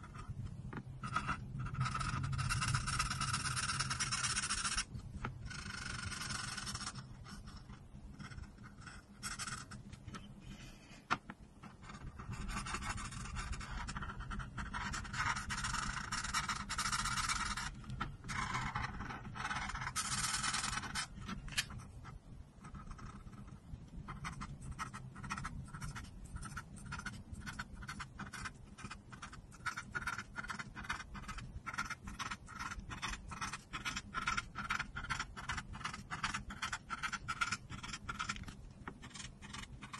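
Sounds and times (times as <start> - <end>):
marker scratching on paper: 1.0 - 4.9, 5.5 - 11.0, 11.6 - 39.9.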